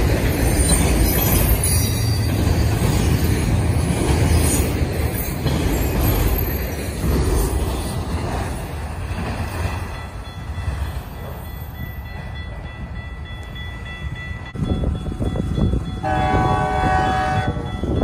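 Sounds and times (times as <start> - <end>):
freight train rumbling past: 0.0 - 18.0
train horn chord: 16.0 - 17.8.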